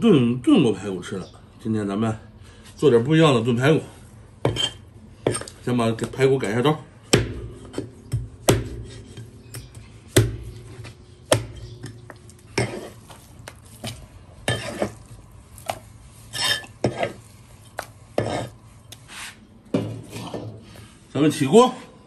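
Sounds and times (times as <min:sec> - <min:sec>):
meat cleaver chopping ribs: 0:07.1 - 0:15.0.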